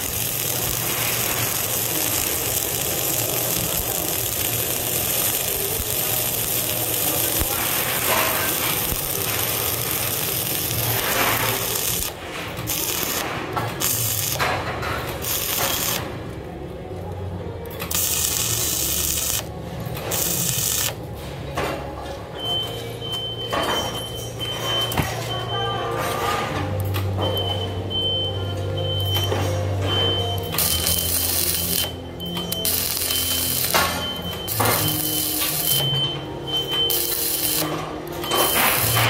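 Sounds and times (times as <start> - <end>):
welding arc crackling: 0.0 - 16.5, 17.7 - 21.1, 30.1 - 39.0.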